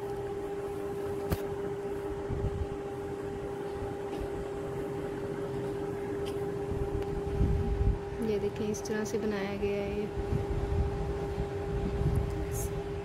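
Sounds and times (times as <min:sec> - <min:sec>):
machine hum: 0:00.0 - 0:13.0.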